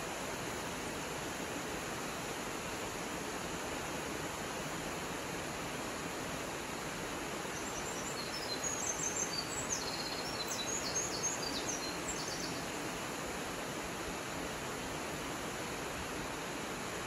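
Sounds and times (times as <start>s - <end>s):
small waterfall splashing: 0.0s - 17.0s
bird chirping: 7.6s - 12.6s.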